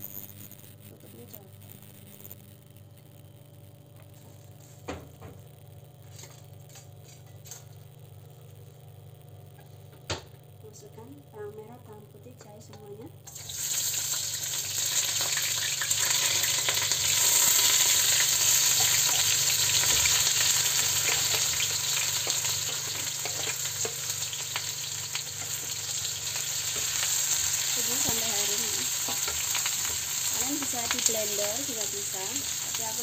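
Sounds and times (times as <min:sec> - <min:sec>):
food sizzling in hot oil: 0:13.2 - 0:33.0.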